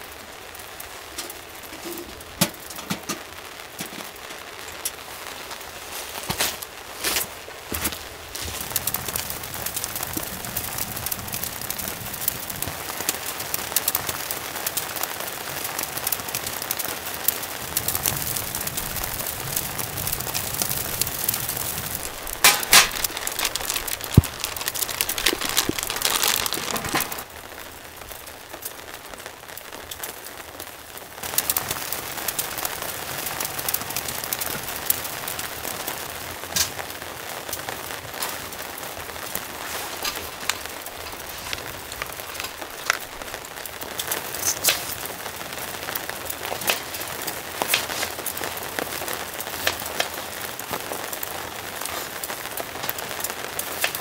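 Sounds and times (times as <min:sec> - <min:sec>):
rain pattering on a tent: 0:00.0 - 0:54.0
tent fabric rustling: 0:04.0 - 0:09.4, 0:20.3 - 0:27.4, 0:39.4 - 0:43.3.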